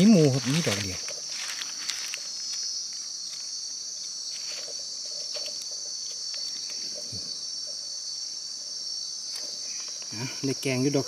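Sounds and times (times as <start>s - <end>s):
forest insects chirring: 0.0s - 11.0s.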